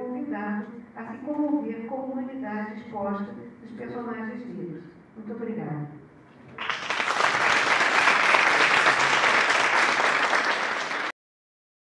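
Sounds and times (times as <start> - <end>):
audience applauding: 6.6 - 11.2.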